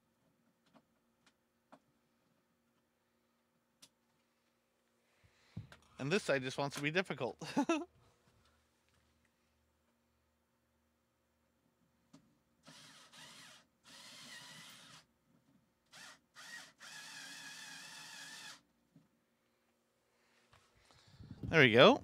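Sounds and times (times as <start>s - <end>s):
cordless drill motor whining: 12.7s - 15.0s, 15.9s - 18.6s.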